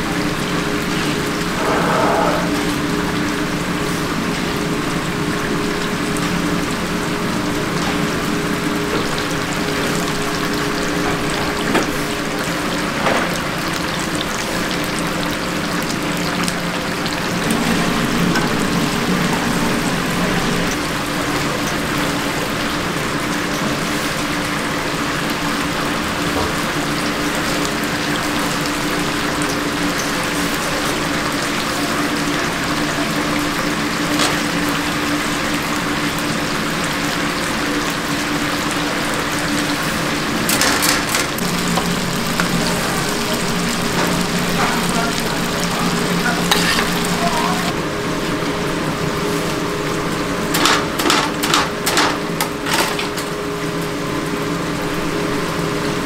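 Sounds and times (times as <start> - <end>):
low hum: 0.3 - 10.9, 16.1 - 22.7.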